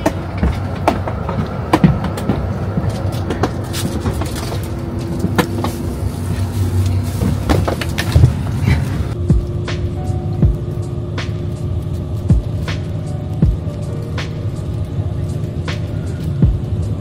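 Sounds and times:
scattered clicks and knocks: 0:00.0 - 0:05.8
bus engine rumbling: 0:00.0 - 0:17.0.

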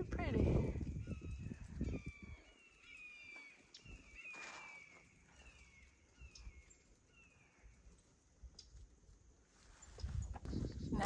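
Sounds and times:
bird whistling downward notes: 0:01.0 - 0:07.6
footsteps on a trail: 0:01.2 - 0:06.7.

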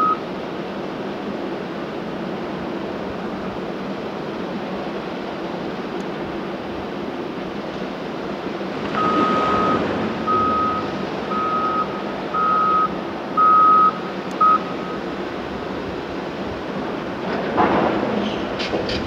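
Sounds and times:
reversing alarm beeping: 0:00.0 - 0:00.2, 0:08.9 - 0:15.0
loader engine running: 0:01.2 - 0:19.0.

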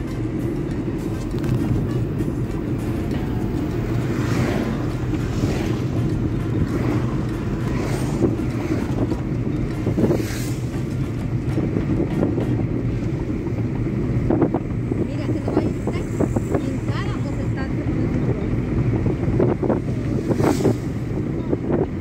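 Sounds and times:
car engine and tyre rumble: 0:00.0 - 0:22.0
passing traffic whooshes: 0:00.0 - 0:22.0.

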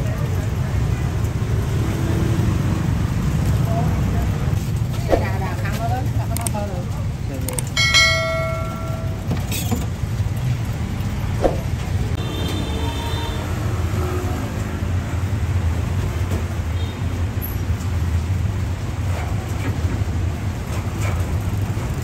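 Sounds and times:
low rumble of road traffic: 0:00.0 - 0:22.0
short ringing chime: 0:07.8 - 0:09.6.

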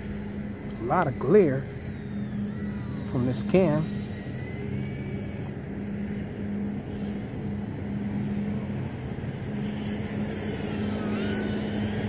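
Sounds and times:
quadcopter propellers buzzing: 0:00.0 - 0:12.0.

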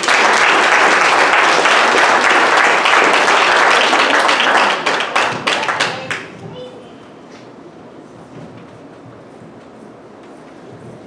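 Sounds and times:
congregation applauding: 0:00.0 - 0:06.4.

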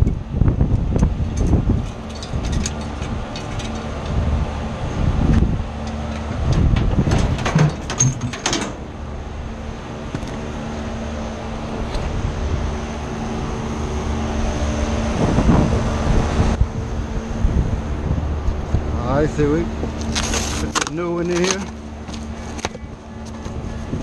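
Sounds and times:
mechanical hum of equipment: 0:00.0 - 0:24.0
heavy metal knocks and clanks: 0:06.1 - 0:09.0.

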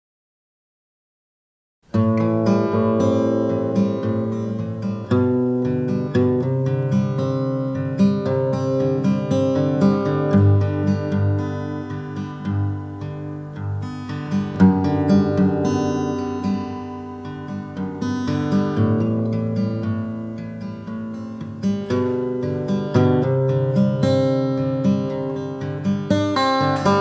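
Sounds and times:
acoustic guitar plucking: 0:01.9 - 0:27.0.

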